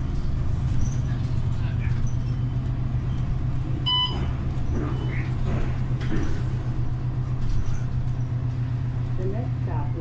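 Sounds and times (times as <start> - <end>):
bus engine drone: 0.0 - 10.0.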